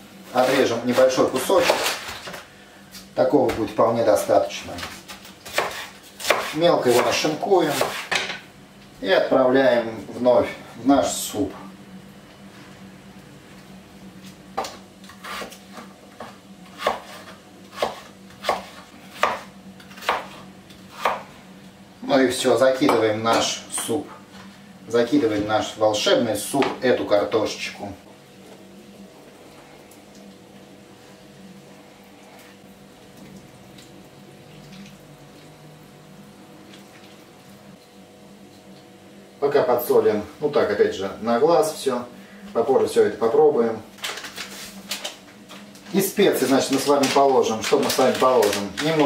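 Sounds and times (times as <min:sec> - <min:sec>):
steady low hum: 0:00.0 - 0:49.0
knife chopping on wooden board: 0:04.8 - 0:08.3, 0:14.6 - 0:21.2.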